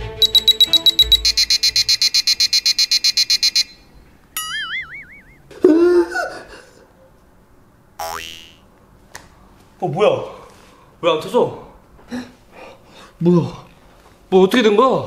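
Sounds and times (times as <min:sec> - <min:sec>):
rapid electronic beeps: 0:00.2 - 0:03.8
wobbling warbling tone: 0:04.4 - 0:05.5, 0:08.0 - 0:08.6.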